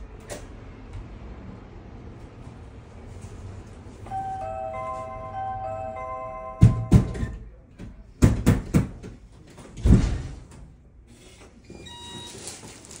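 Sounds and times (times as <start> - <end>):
keypad beeps: 4.2 - 7.4
knocks on a door: 6.6 - 7.3, 8.2 - 9.2.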